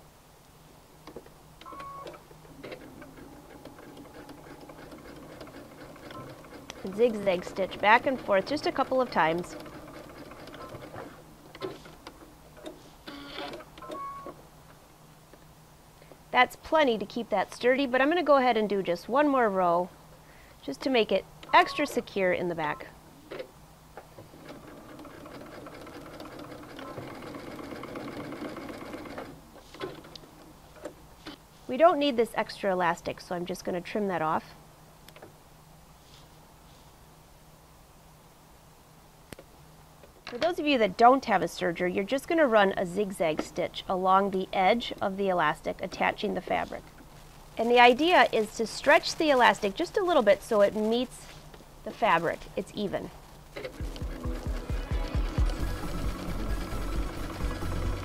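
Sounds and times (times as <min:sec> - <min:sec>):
sewing machine stitching: 0:01.7 - 0:13.6, 0:24.3 - 0:30.2, 0:53.6 - 0:58.0.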